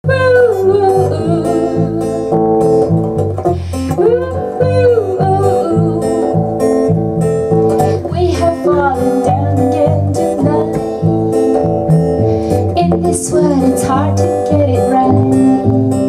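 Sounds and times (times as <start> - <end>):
woman singing with vibrato: 0.0 - 2.4, 3.9 - 6.6, 7.9 - 11.1, 12.8 - 16.0
electric bass: 0.0 - 16.0
strummed acoustic guitar: 0.0 - 16.0.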